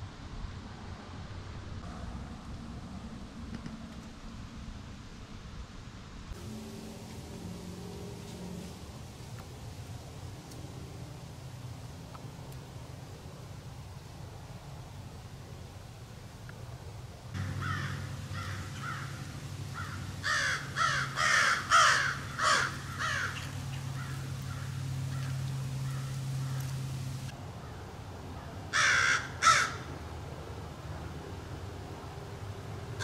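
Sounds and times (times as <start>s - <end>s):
crow cawing: 17.4s - 27.0s, 28.4s - 29.9s.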